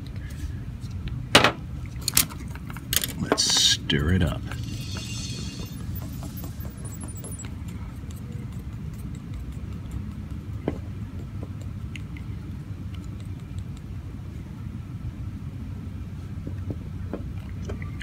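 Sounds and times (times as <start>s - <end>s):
steady low rumble: 3.8s - 17.0s
stirrer ticking and tapping: 4.5s - 13.9s.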